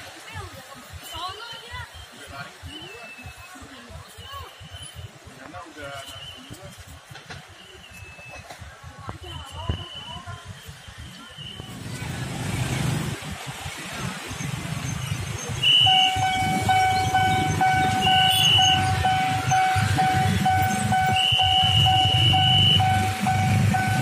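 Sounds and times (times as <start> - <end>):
level crossing warning bell: 15.9 - 24.0.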